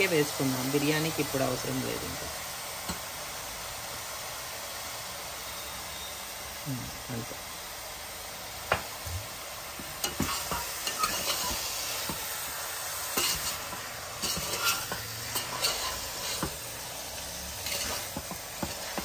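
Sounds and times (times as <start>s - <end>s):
meat sizzling in a pot: 0.0s - 19.0s
utensil scraping and knocking pot: 9.8s - 12.3s, 13.1s - 16.7s, 17.6s - 19.0s.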